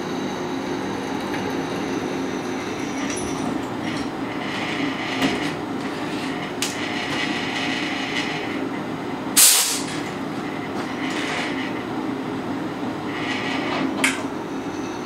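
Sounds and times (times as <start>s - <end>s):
short loud air hiss: 9.4s - 9.9s.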